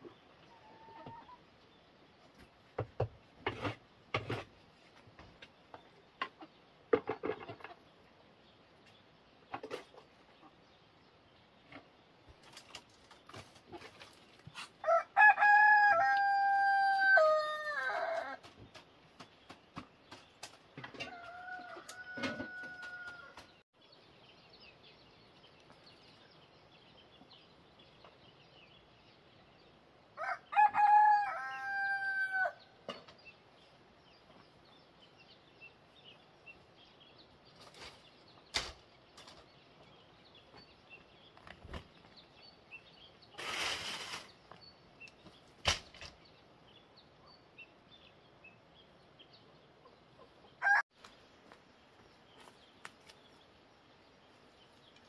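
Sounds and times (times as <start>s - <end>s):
rooster crowing: 14.8s - 18.4s, 21.1s - 23.4s, 30.2s - 32.6s.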